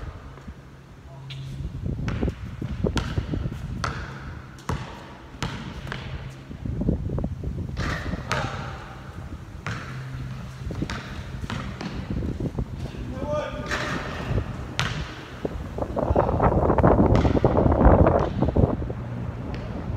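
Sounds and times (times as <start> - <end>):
basketball bouncing on hard court: 2.0 - 6.4, 7.8 - 9.0, 9.6 - 12.4, 13.6 - 15.5, 16.9 - 18.6, 19.4 - 19.9.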